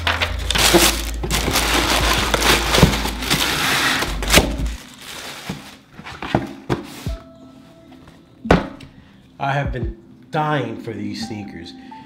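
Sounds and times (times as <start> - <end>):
tissue paper rustling: 0.0 - 7.2.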